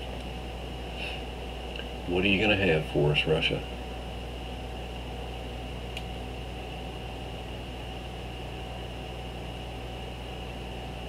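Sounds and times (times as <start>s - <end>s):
computer fan hum and whine: 0.0s - 11.0s
faint click: 5.9s - 6.1s.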